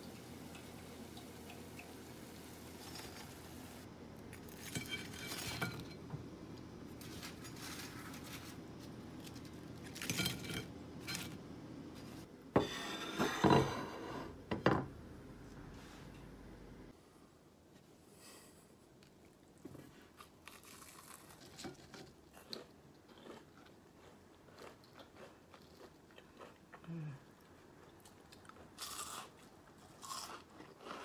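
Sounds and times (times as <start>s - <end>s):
utensils and dishes clinking: 2.7s - 3.5s, 4.5s - 6.1s, 9.8s - 11.4s.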